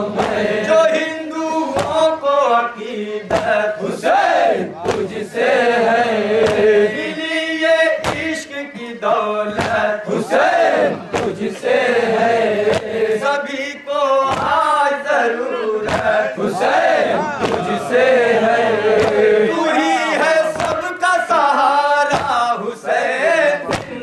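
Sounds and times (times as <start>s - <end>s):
men chanting in unison: 0.0s - 24.0s
hands slapping chests: 0.2s - 0.5s, 3.3s - 3.6s, 4.8s - 5.2s, 6.4s - 6.7s, 9.6s - 9.8s, 11.1s - 11.7s, 12.6s - 13.0s, 14.3s - 14.6s, 15.8s - 16.7s, 17.4s - 17.8s, 18.9s - 19.3s, 22.1s - 22.4s, 23.7s - 24.0s
lead voice on microphone: 17.1s - 17.8s.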